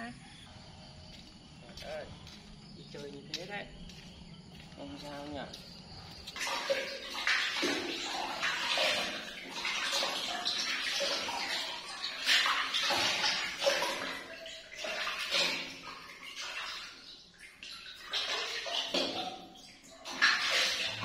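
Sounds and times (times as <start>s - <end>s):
water splashing in plastic tub: 6.3s - 21.0s.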